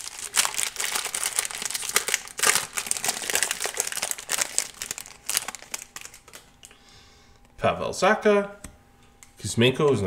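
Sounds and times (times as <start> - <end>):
foil wrapper crinkling: 0.0 - 6.8.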